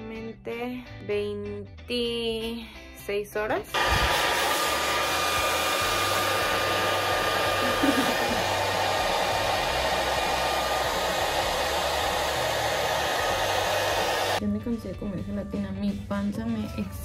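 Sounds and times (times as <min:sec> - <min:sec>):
hair dryer blowing: 0:03.7 - 0:14.4.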